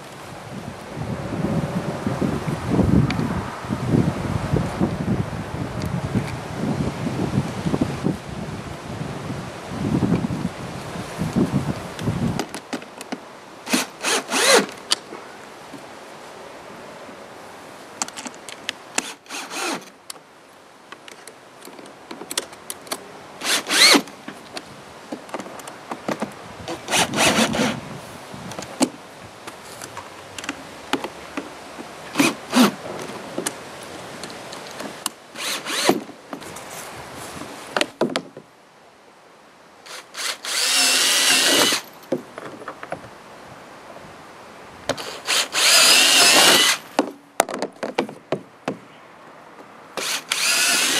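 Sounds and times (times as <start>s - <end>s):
cordless drill whining: 13.7s - 14.7s, 19.0s - 19.8s, 23.4s - 24.0s, 26.8s - 27.8s, 35.4s - 36.0s, 39.9s - 41.8s, 45.0s - 46.8s, 50.0s - 50.9s.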